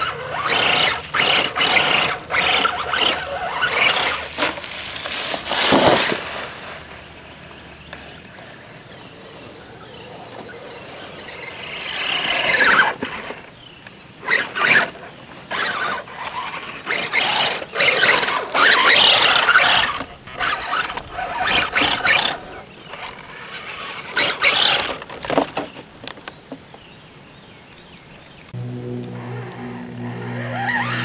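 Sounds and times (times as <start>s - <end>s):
electric motor whining: 0.0s - 4.6s, 14.2s - 25.0s, 28.6s - 31.0s.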